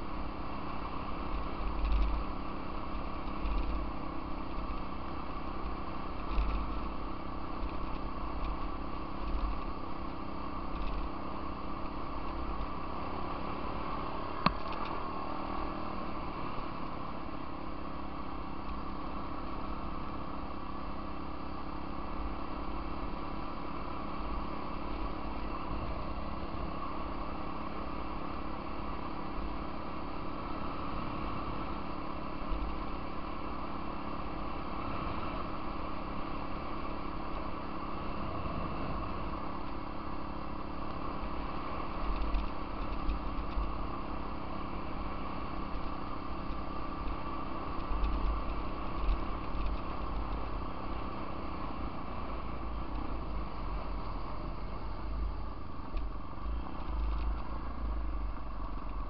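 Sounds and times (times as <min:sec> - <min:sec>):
off-road vehicle engine running: 0:00.0 - 0:59.0.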